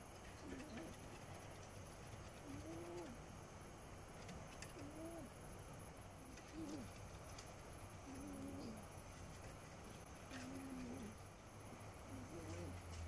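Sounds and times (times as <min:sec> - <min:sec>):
steady low hiss: 0:00.0 - 0:13.0
faint low animal calls: 0:02.3 - 0:03.2, 0:04.7 - 0:05.4, 0:08.0 - 0:09.0.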